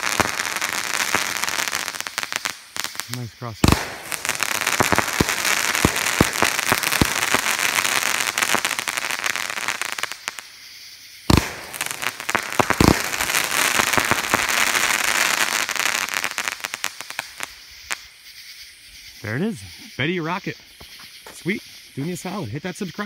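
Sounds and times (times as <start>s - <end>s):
fireworks bangs: 0.0s - 10.5s, 11.2s - 18.1s
fireworks crackling: 0.0s - 19.6s.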